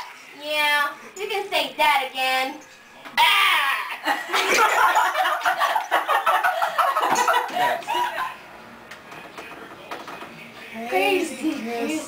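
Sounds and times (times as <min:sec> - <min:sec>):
girls giggling: 0:03.8 - 0:08.4.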